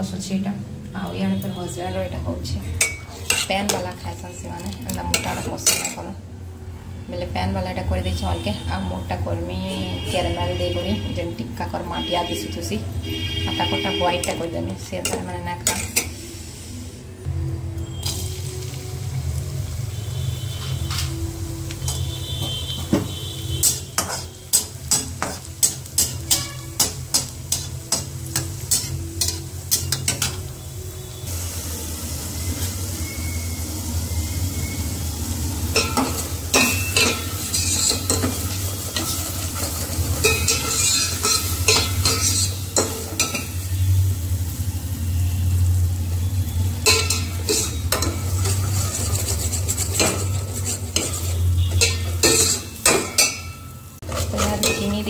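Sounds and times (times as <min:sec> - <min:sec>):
steel spoon scraping a pot: 0:02.6 - 0:03.9, 0:23.2 - 0:30.4, 0:35.7 - 0:43.6, 0:46.8 - 0:55.0
metal spatula scraping and tapping pan: 0:02.6 - 0:06.0, 0:14.1 - 0:16.2, 0:20.6 - 0:30.5, 0:35.7 - 0:43.6, 0:46.8 - 0:55.0
faint sizzle: 0:13.5 - 0:55.0.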